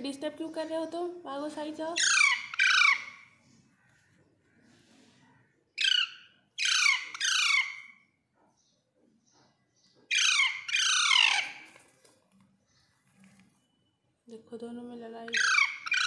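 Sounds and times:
parakeets squawking harshly: 2.0 - 3.3, 5.8 - 8.0, 10.1 - 11.8, 15.3 - 16.0.

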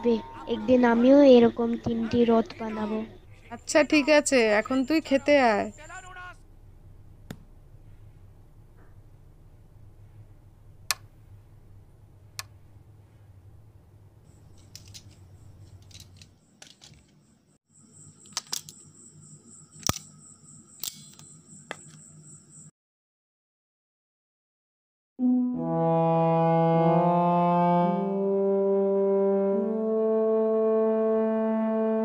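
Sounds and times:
high-pitched whine: 0.0 - 7.1
low steady hum: 0.0 - 17.0.

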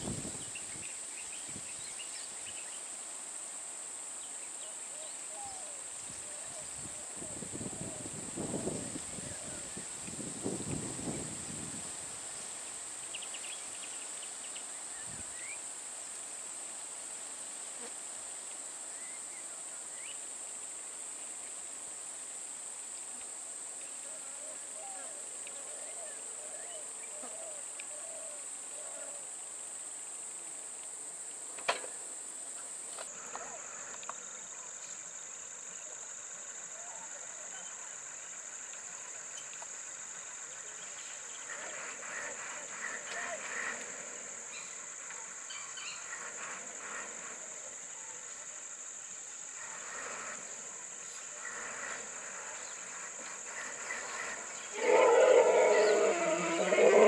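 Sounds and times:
high-pitched insect drone: 32.8 - 57.0.

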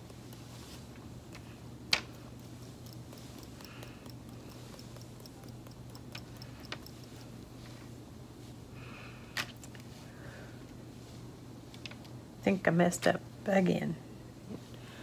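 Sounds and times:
paintbrush clicks and taps: 0.0 - 7.2
steady low hum: 0.0 - 15.0.

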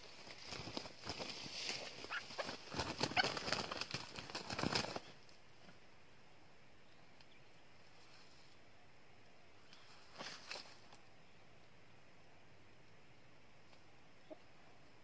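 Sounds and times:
dry leaves rustling and crackling: 0.0 - 5.0
rooster flapping and struggling: 0.0 - 5.1
faint high hiss: 0.0 - 15.0.

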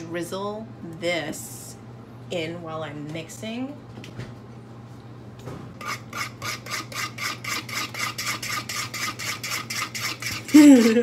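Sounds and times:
whisk beating batter in bowl: 5.8 - 11.0.

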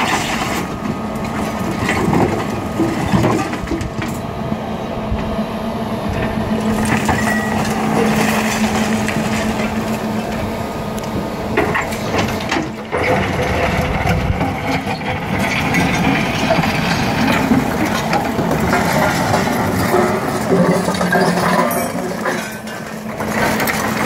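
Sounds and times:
electric motor and hydraulic pump hum: 0.0 - 24.0
bucket scraping and cracking rock: 6.6 - 10.4, 11.6 - 24.0.

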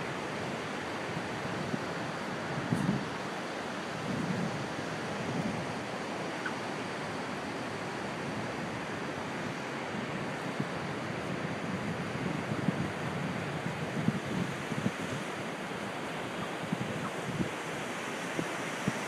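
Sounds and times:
surf washing onto sandy beach: 0.0 - 19.0
wind buffeting microphone: 1.1 - 3.2, 4.0 - 6.7, 8.2 - 19.0.

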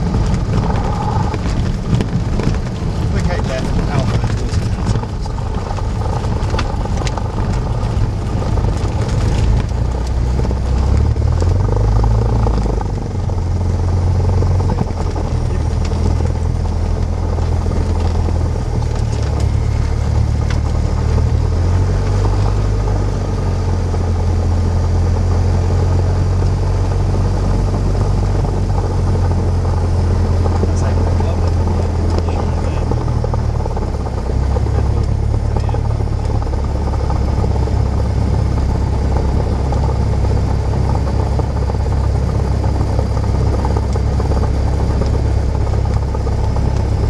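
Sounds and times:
knocks and rattles: 0.0 - 13.1
aircraft engine and propeller drone: 0.0 - 47.0.

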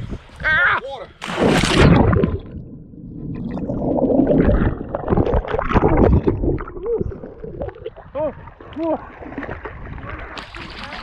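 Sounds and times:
water churning and gurgling: 1.1 - 11.0
person splashing into sea: 1.2 - 2.6.

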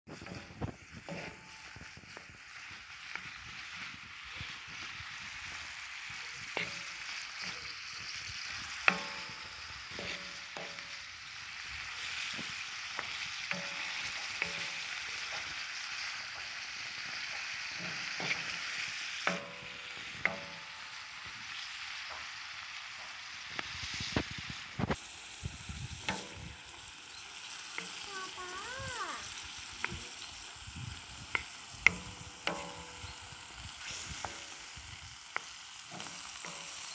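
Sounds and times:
meat sizzling on griddle: 0.1 - 36.9
spatula scraping and knocking iron: 31.9 - 33.0.

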